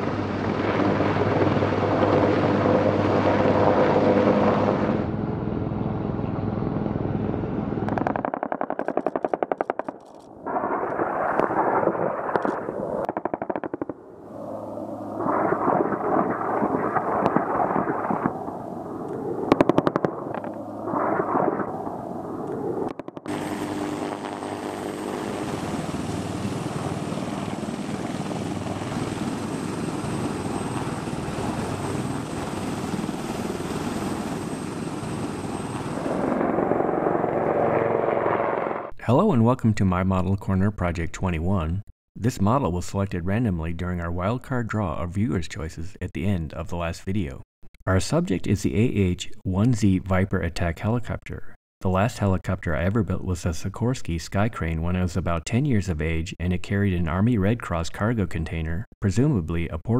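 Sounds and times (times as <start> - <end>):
helicopter rotor and engines: 0.0 - 10.8, 12.5 - 39.0
rapid gunfire bursts: 7.9 - 12.5, 13.1 - 14.0.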